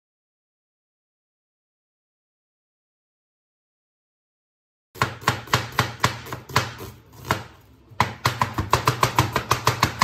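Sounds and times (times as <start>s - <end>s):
knife chopping on cutting board: 5.0s - 10.0s.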